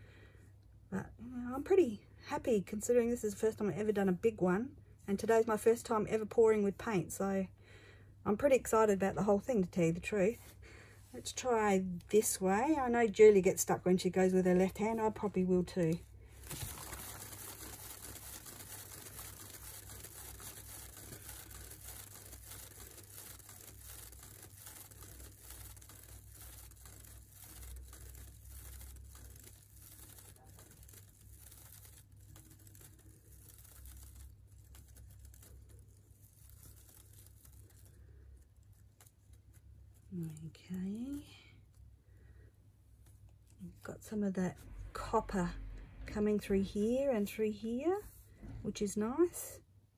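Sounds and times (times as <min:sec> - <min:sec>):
paint spattering on plastic sheet: 0:15.8 - 0:39.8.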